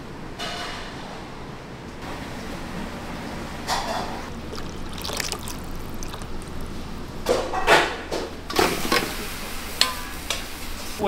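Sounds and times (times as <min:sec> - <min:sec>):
liquid pouring: 0:04.3 - 0:07.3.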